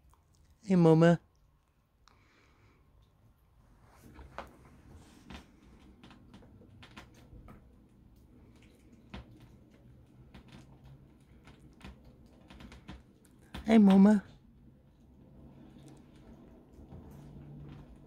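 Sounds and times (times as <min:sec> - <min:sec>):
squirrel gnawing nut shell: 0:05.4 - 0:17.6.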